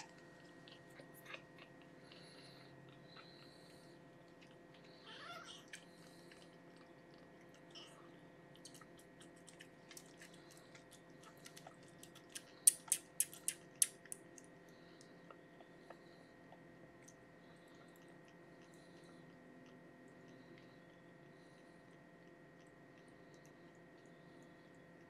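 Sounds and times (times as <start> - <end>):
kitten suckling clicks: 8.8 - 14.5.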